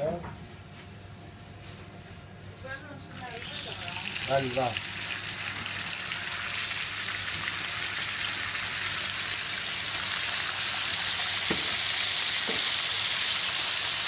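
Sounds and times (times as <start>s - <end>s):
meat sizzling in oil: 3.2s - 14.0s.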